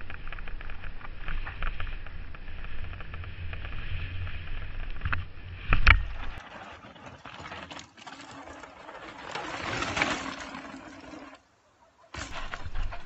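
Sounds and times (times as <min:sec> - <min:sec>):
wind rumbling on microphone: 0:00.0 - 0:06.4
bike rattles and clicks: 0:00.0 - 0:07.4, 0:12.2 - 0:13.0
outdoor noise: 0:00.0 - 0:13.0.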